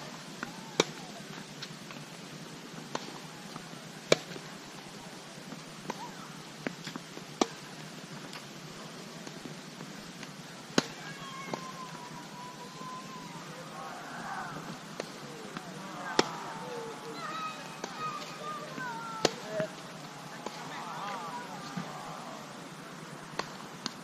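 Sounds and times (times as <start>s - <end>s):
rackets hitting tennis balls: 10.2s - 11.8s, 13.6s - 24.0s
tennis ball bounces: 14.8s - 22.2s, 23.4s - 24.0s.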